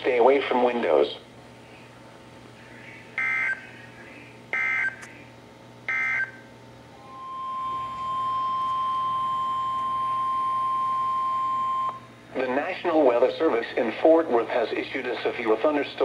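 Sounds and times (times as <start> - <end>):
steady alert tone: 7.0 - 10.9.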